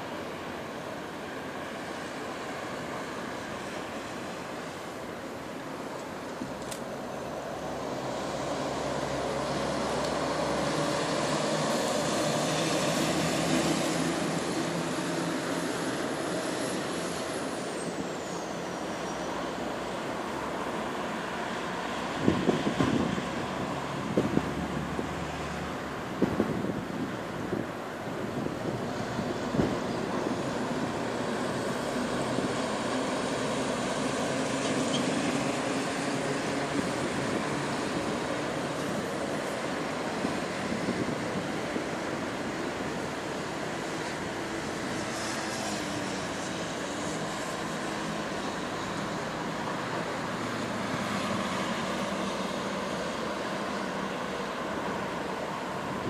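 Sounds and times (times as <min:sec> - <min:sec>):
road traffic rumble: 0:00.0 - 0:56.0
truck driving past: 0:07.5 - 0:25.8.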